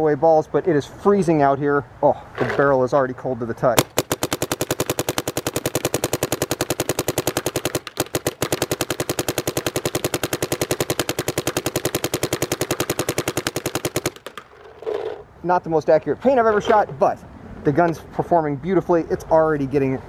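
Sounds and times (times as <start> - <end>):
paintball marker rapid firing: 3.8 - 14.5.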